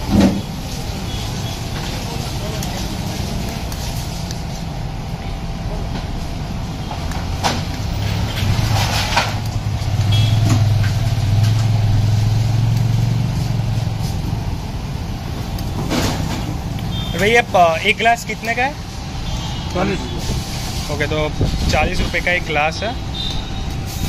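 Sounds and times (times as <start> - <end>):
low motor rumble: 0.0 - 24.0.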